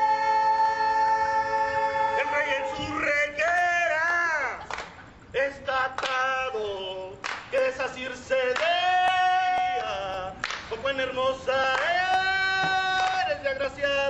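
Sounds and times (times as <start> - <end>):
voices singing: 0.0 - 14.0
sharp claps: 4.6 - 5.0, 6.0 - 6.2, 7.2 - 7.6, 10.4 - 10.8.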